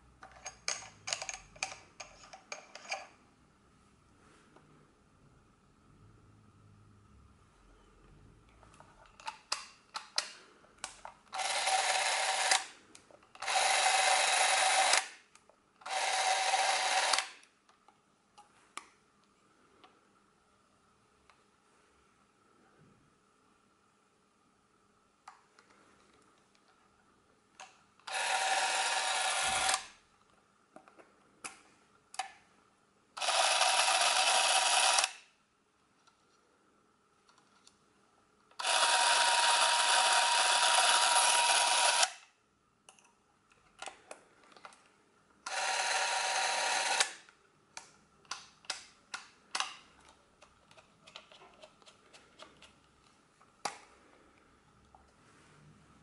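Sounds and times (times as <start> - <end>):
cine camera mechanical whirr: 11.3 - 12.7, 13.3 - 15.1, 15.8 - 17.4, 28.0 - 30.0, 33.2 - 35.2, 38.6 - 42.2, 45.5 - 47.3.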